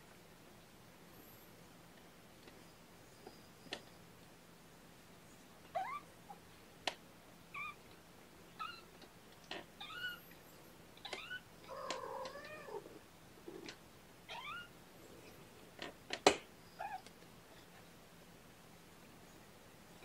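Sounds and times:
kittens mewing: 0:11.0 - 0:13.7.

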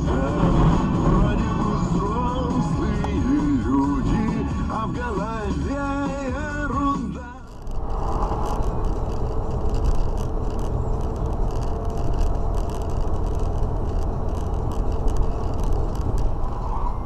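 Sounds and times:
car engine and tyre rumble: 0:00.0 - 0:17.0
faint clicks: 0:07.4 - 0:16.4.

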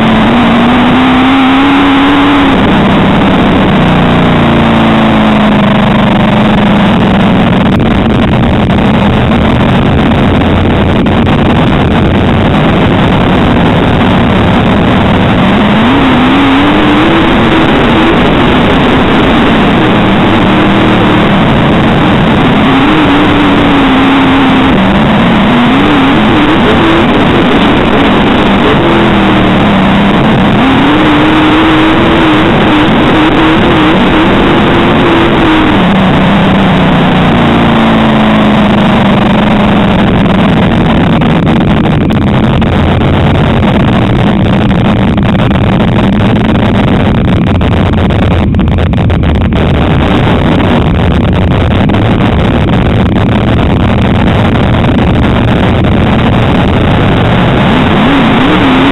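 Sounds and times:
race car engine revving: 0:00.0 - 0:58.9
rushing noise: 0:00.0 - 0:58.9.

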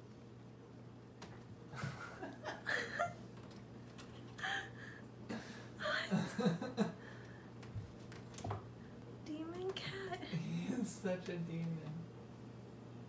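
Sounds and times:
steady low hum: 0:00.0 - 0:13.0
person laughing quietly: 0:01.7 - 0:03.3, 0:04.2 - 0:07.2.

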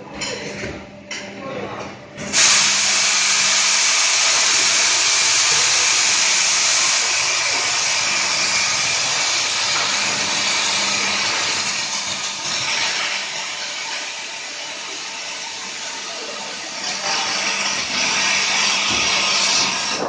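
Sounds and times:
rushing air hiss: 0:02.3 - 0:15.6.

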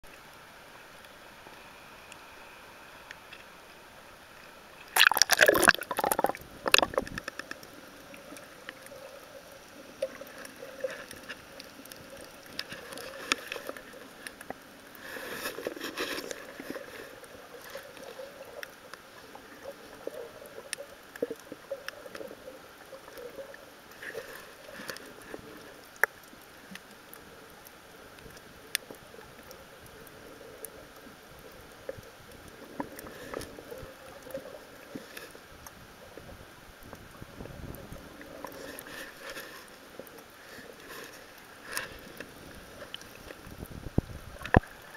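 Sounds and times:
muffled underwater water movement: 0:00.0 - 0:44.9
faint clicks underwater: 0:04.8 - 0:44.9
splash into water: 0:05.0 - 0:07.0.

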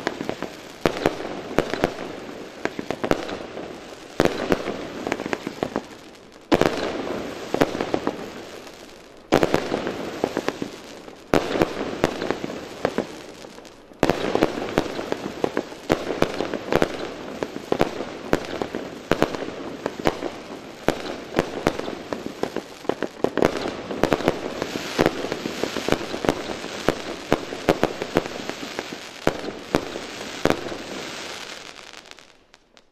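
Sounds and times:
firework crackling: 0:00.0 - 0:32.9
firework shots bursting: 0:14.0 - 0:32.2.

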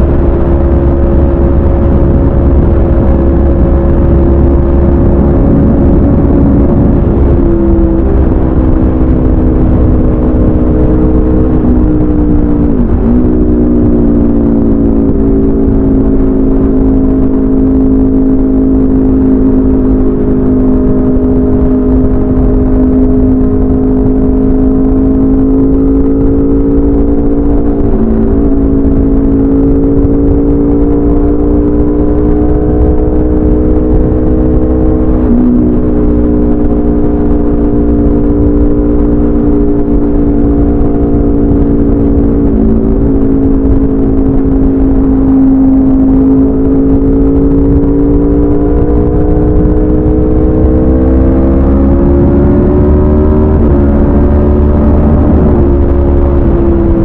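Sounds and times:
wind rushing: 0:00.0 - 0:20.3
motorcycle engine at speed: 0:00.0 - 0:57.0.

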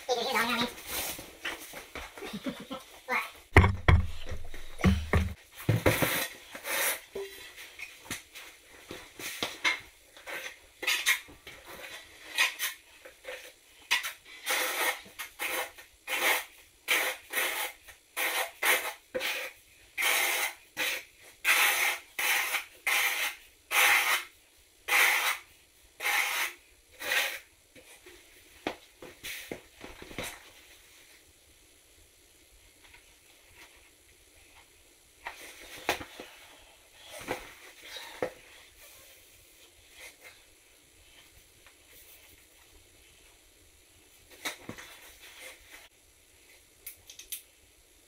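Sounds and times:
trowel scraping mortar: 0:12.3 - 0:24.3, 0:26.0 - 0:27.5.

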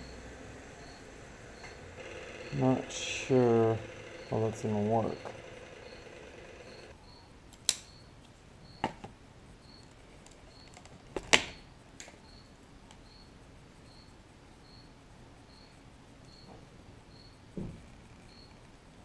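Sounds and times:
faint high chirp: 0:15.5 - 0:17.4, 0:18.3 - 0:18.6.

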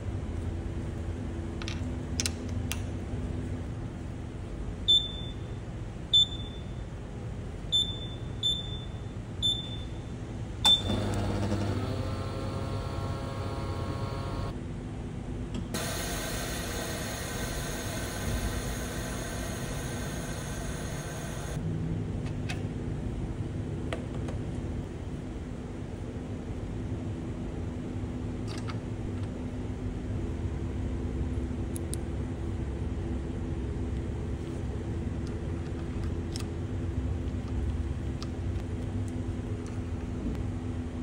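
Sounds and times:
short high beeps: 0:06.2 - 0:06.8, 0:07.8 - 0:10.1
machine running: 0:10.8 - 0:14.6, 0:15.8 - 0:21.6.

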